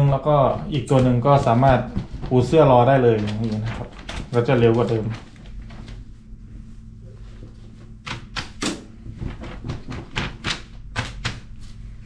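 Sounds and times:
steady low hum: 0.0 - 12.0
fabric rustling: 0.5 - 8.0.

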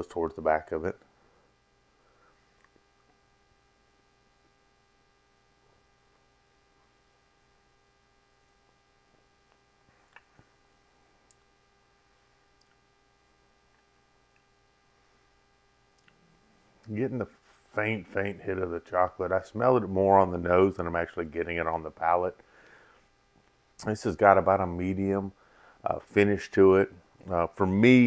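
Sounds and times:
faint hum: 0.0 - 28.0
small clicks: 15.9 - 16.2.

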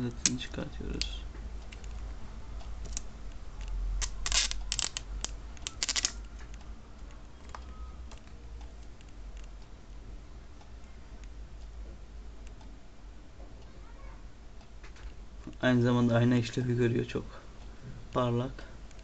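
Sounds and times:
plastic film crackling: 4.0 - 6.2.

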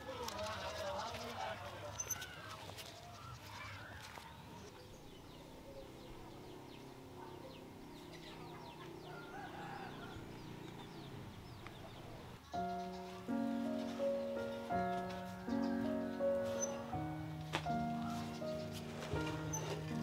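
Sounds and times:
high bird chirps: 10.7 - 18.8
chickens clucking: 11.9 - 17.0
music: 12.5 - 20.0.

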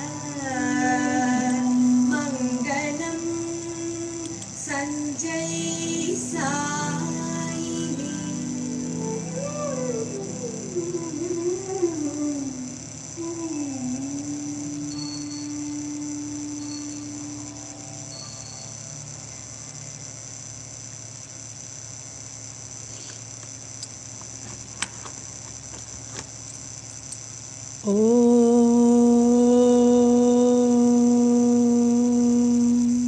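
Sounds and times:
held sung note: 0.0 - 19.1, 27.8 - 33.0
chanted om: 0.0 - 20.1, 27.8 - 33.0
faint high whine: 0.0 - 33.0.

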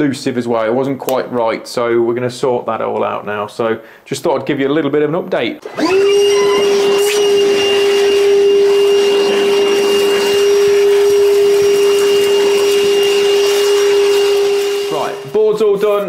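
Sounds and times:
vacuum cleaner whining: 5.6 - 16.0.

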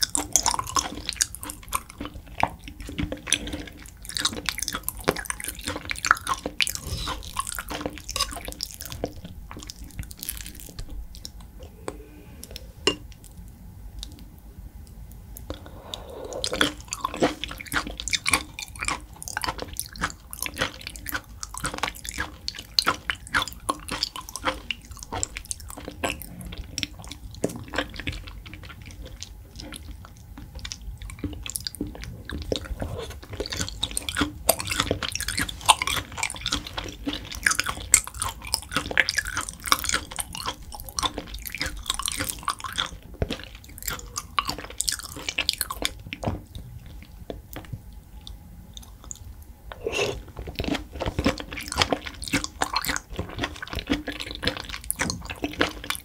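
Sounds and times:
wet chewing: 0.0 - 14.3, 15.4 - 56.0
lip and tongue clicks: 15.4 - 56.0.

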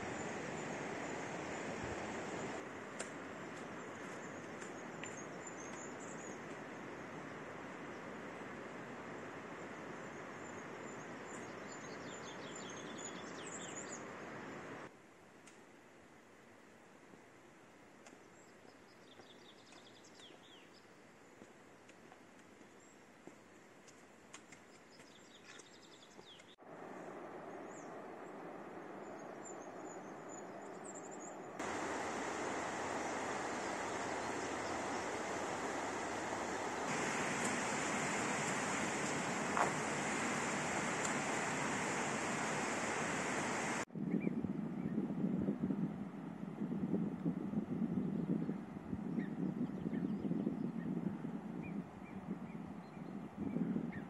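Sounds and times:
outdoor rushing noise: 31.6 - 43.8.

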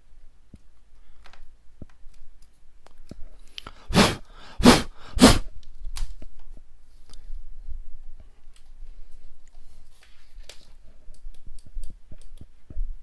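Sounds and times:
puffs of breath blown: 3.6 - 5.5.

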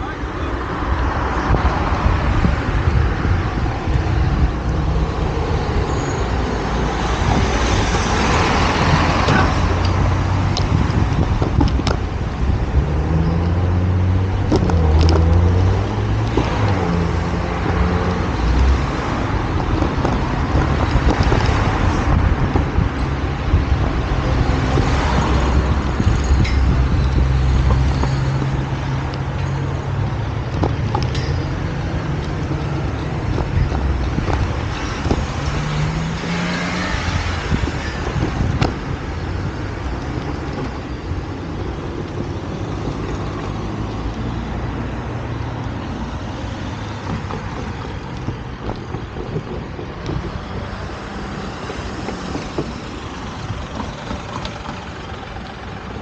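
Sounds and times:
steady traffic noise: 0.0 - 56.0
vehicle engine running: 45.9 - 56.0.

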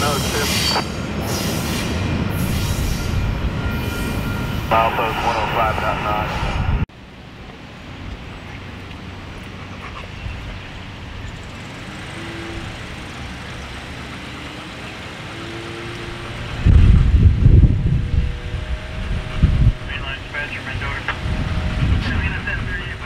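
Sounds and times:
distant road traffic: 0.0 - 23.0
loud low rumble: 2.8 - 6.9, 16.3 - 23.0.

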